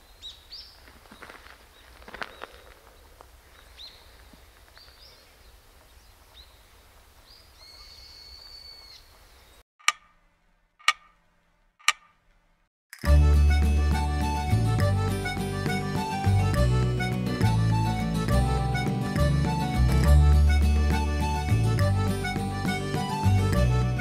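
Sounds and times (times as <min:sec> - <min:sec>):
birds chirping: 0:00.0 - 0:09.6
clock ticks: 0:09.8 - 0:10.2, 0:10.8 - 0:11.2, 0:11.8 - 0:12.1
music: 0:13.0 - 0:24.0.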